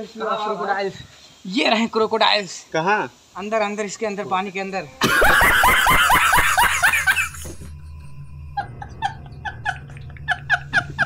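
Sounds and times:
low hum: 4.9s - 11.0s
man laughing hard: 5.0s - 7.7s, 8.6s - 11.0s.

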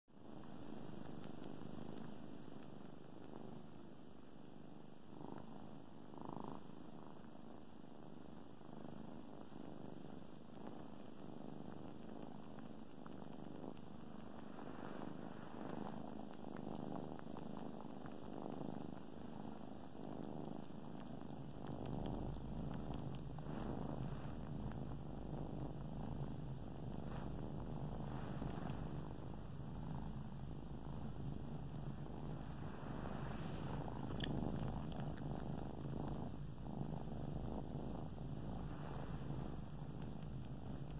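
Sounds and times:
kittens purring: 0.1s - 40.9s.

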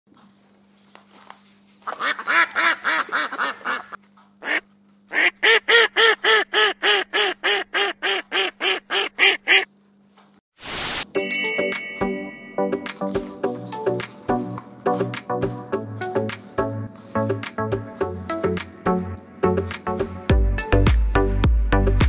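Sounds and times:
goose honking: 1.9s - 9.7s.

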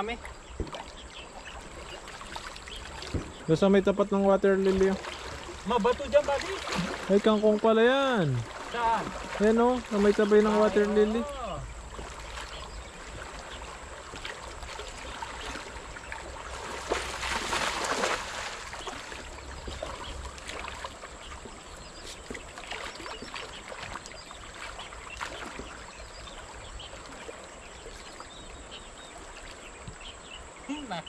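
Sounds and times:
water trickling and sloshing: 0.0s - 31.0s
net splashing into water: 4.6s - 21.1s, 22.3s - 25.9s.

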